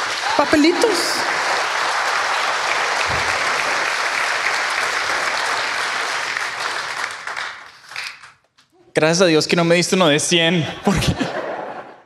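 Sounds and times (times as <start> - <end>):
congregation applauding: 0.0 - 8.4.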